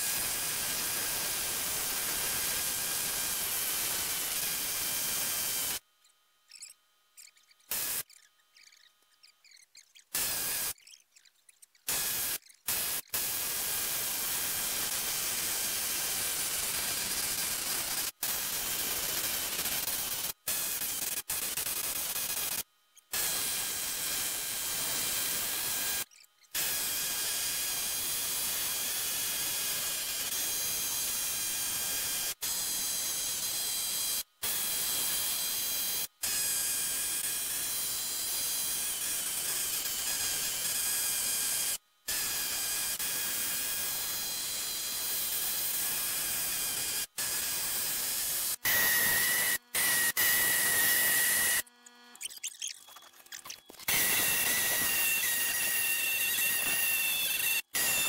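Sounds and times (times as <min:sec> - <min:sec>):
pneumatic needle scaler hammering: 0:00.0 - 0:52.3, 0:53.4 - 0:58.0.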